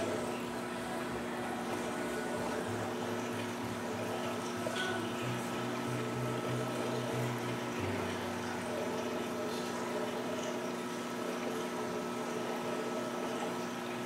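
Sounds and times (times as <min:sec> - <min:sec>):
aquarium pump humming: 0:00.0 - 0:14.0
circulating water hiss: 0:00.0 - 0:14.0.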